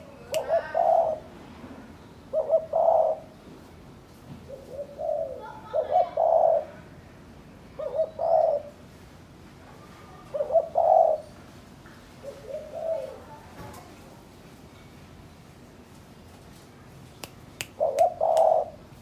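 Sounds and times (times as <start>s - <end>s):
dove cooing: 0.4s - 1.3s, 2.3s - 3.4s, 4.4s - 6.9s, 7.8s - 8.8s, 10.2s - 11.3s, 12.2s - 13.4s, 17.8s - 18.9s.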